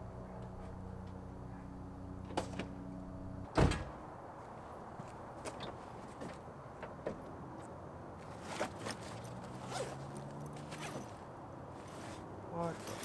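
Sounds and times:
bag zipper being pulled open: 8.5 - 11.0.

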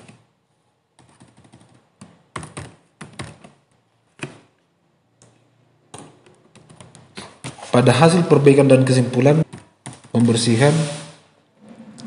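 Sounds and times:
computer keys clicking: 1.0 - 3.6, 5.2 - 7.2, 9.5 - 10.3.

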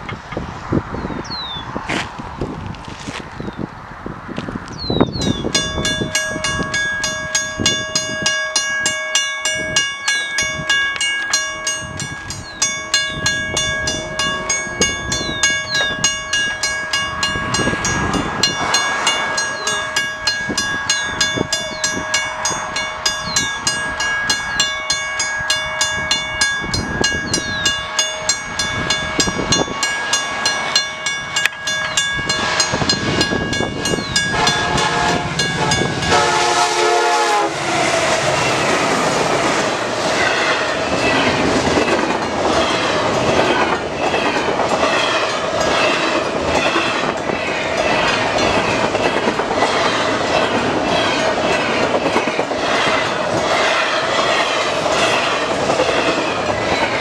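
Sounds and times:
train rumble: 0.0 - 57.0
locomotive air horn blasts: 34.3 - 38.2.

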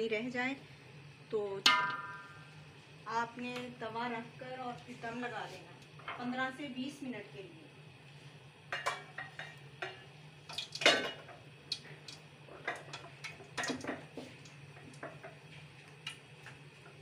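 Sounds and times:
metal cookware clinking: 1.7 - 2.4, 8.7 - 11.8.

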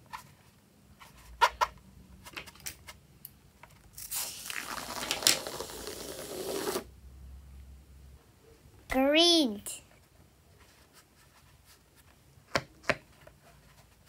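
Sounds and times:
liquid squirting spattering: 4.0 - 6.0.

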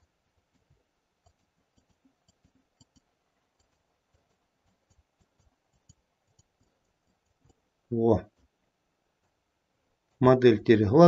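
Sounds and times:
faint computer clicks: 0.0 - 7.6.

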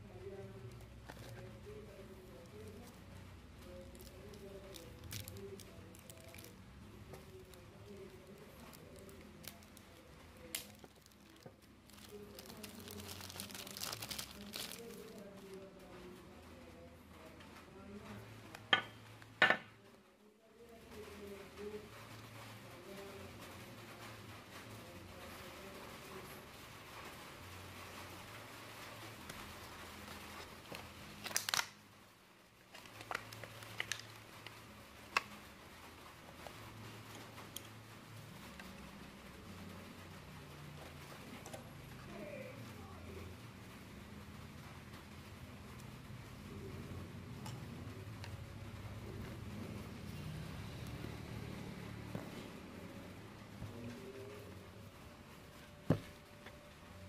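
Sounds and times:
low steady hum: 0.0 - 57.0
plastic bags crinkling: 0.3 - 15.8, 28.6 - 31.9, 32.6 - 35.6.

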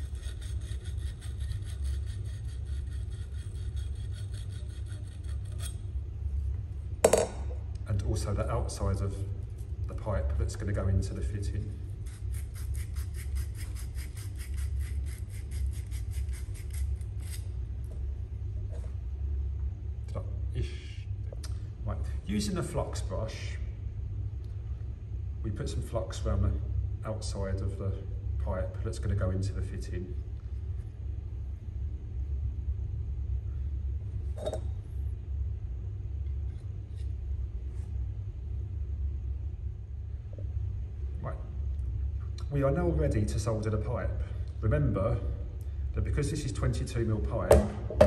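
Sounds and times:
wire brush scrubbing copper pipe: 0.0 - 5.8, 12.0 - 17.5
steady low rumble: 0.0 - 12.8, 16.2 - 48.0
low steady hum: 0.0 - 48.0.

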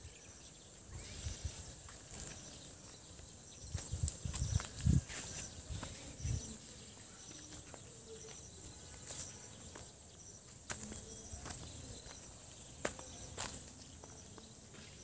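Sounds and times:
footsteps on dirt path: 1.1 - 15.0.

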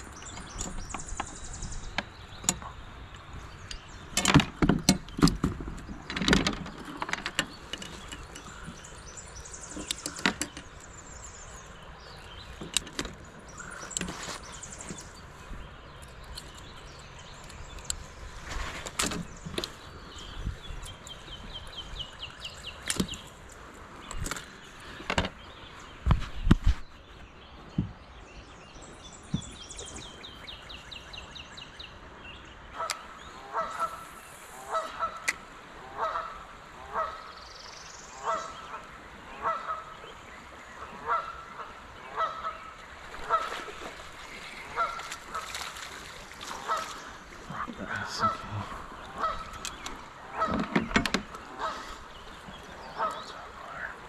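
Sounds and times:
goose honking: 32.8 - 34.0, 35.9 - 37.2, 39.4 - 39.9, 44.7 - 45.4, 49.1 - 49.6, 51.6 - 51.9.

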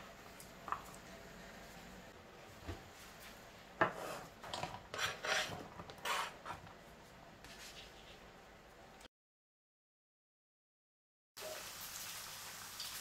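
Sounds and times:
knife scraping cutting board: 3.8 - 4.3, 4.9 - 6.6.

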